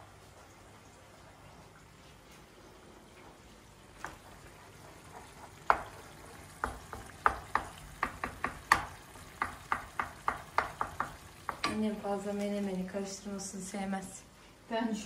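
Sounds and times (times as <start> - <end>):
faint frying sizzle: 0.0 - 15.0
wooden spoon stirring in pan: 4.0 - 12.6
spoon tapping against pan: 6.6 - 11.9.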